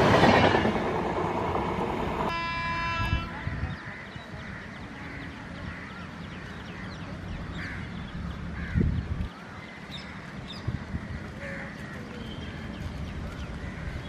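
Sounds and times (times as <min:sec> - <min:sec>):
train rumbling: 0:00.0 - 0:03.9.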